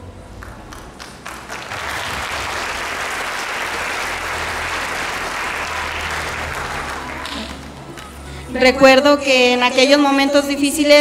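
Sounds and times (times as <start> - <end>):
audience applauding: 0.3 - 8.2.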